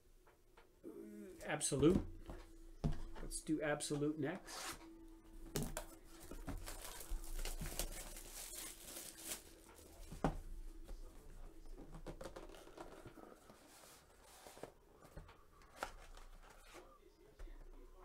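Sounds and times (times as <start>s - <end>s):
cardboard box rustling: 6.2s - 10.4s
plastic shrink-wrap tearing: 6.7s - 9.7s.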